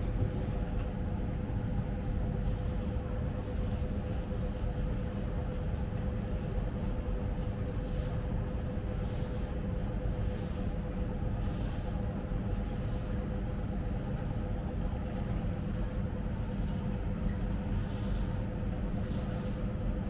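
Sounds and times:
machinery hum: 0.0 - 20.0.

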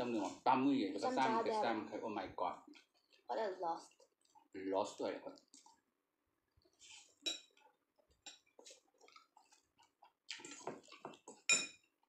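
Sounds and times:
eating noodles: 6.7 - 11.5
forks clinking against ceramic bowls: 11.4 - 11.9.

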